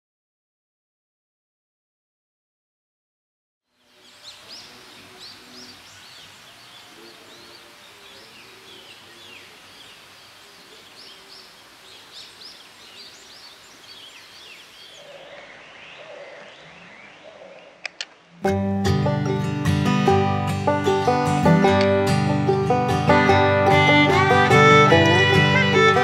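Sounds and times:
background hiss: 3.7 - 18.5
low-pitched bird calls: 3.8 - 18.4.

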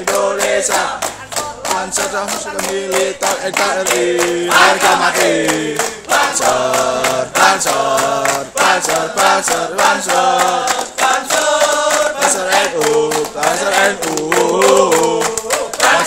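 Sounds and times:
group singing a chant in unison: 0.0 - 16.0
percussive claps or stamps: 0.0 - 16.0.

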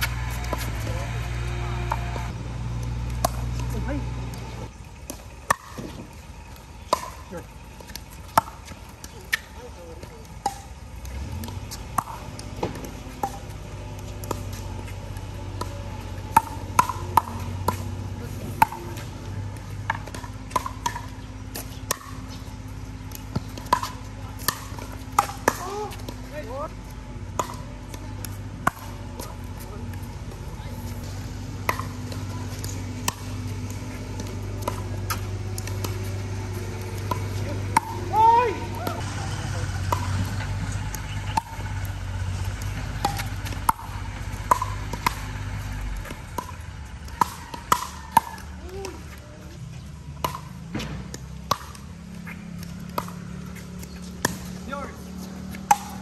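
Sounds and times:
paddles hitting plastic ball: 0.0 - 39.1, 39.9 - 56.0
ball bouncing on concrete: 0.0 - 56.0
steady low hum: 0.0 - 56.0.

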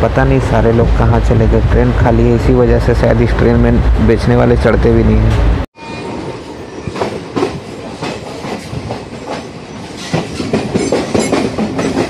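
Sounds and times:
train coaches rumbling: 0.0 - 12.0
wheels clacking over rail joints: 6.9 - 12.0.

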